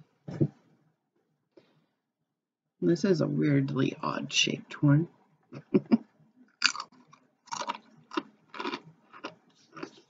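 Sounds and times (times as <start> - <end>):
crunching tortilla chips: 6.6 - 10.0.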